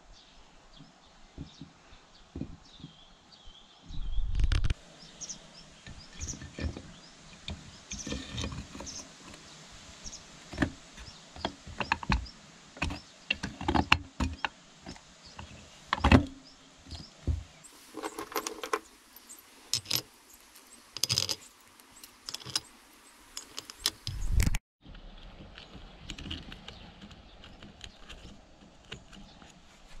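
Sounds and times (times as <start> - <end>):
metallic clinks and taps: 18.0 - 22.7, 23.4 - 24.2.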